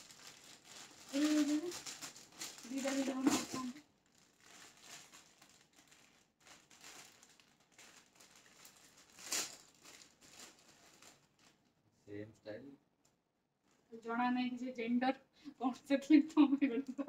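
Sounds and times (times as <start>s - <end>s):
plastic packaging crinkling: 0.0s - 11.7s.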